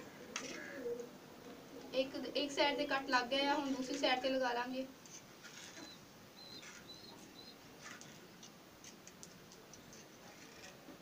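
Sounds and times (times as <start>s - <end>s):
high bird chirps: 5.8s - 7.6s.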